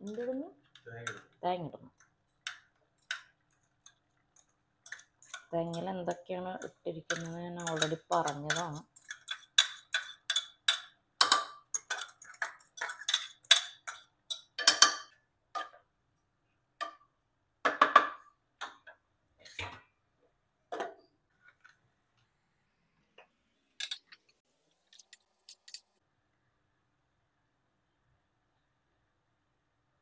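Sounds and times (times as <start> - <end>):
spoon scraping and tapping metal bowl: 2.0 - 15.8, 23.8 - 24.2.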